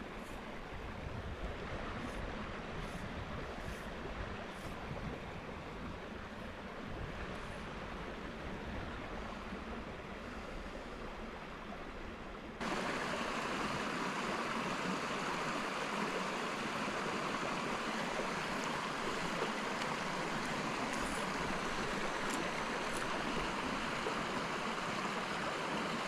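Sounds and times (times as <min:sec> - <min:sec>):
wind rumble on microphone: 0:00.0 - 0:11.7
brook rushing over rocks: 0:12.6 - 0:26.0.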